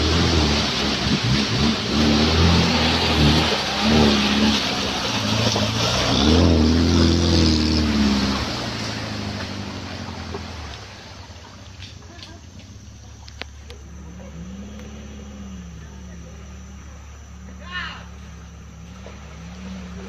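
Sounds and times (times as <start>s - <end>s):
vehicle engine revving: 0.0s - 12.0s, 12.6s - 20.0s.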